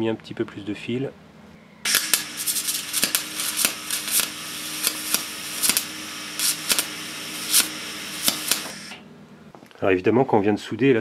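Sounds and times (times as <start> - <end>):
faint steady hum: 0.0 - 10.8
welder arc crackling and popping: 1.9 - 9.1.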